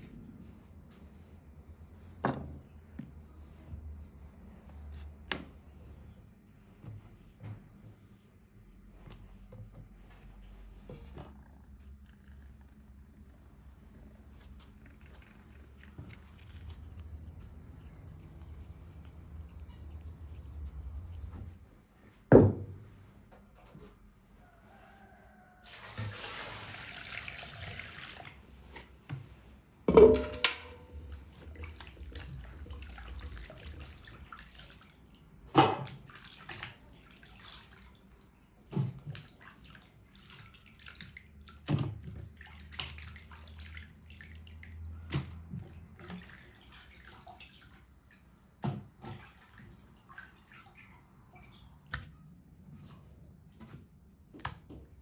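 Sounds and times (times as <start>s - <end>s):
water poured into a basin: 25.6s - 28.7s, 31.0s - 35.2s, 35.8s - 38.2s, 39.0s - 47.8s
hands splashing in water: 38.8s - 47.7s.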